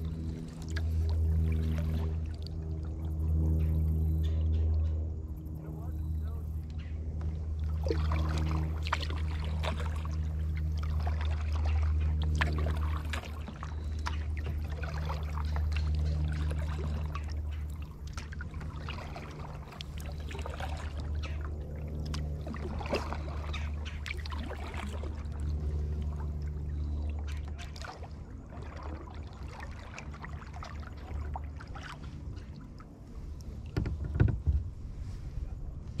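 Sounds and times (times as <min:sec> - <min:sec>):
paddle splashing water: 0:00.0 - 0:04.9, 0:05.6 - 0:36.0
steady low rumble: 0:00.0 - 0:36.0
water lapping against hull: 0:00.0 - 0:36.0.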